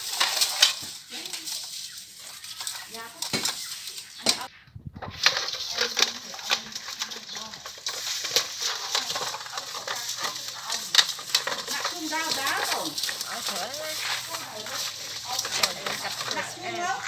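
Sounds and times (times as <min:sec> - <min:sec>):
hands scrubbing fish with grains: 0:00.0 - 0:04.5, 0:05.2 - 0:17.0.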